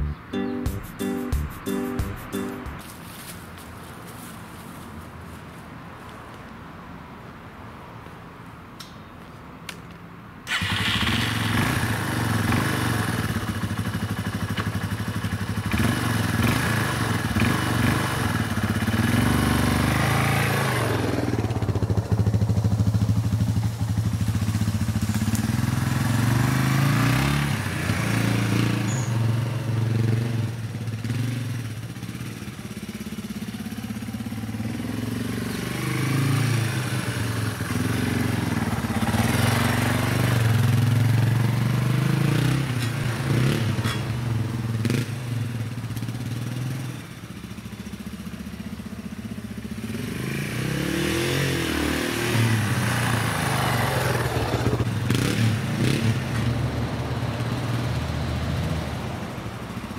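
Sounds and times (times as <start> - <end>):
motorcycle engine revving: 10.5 - 56.5.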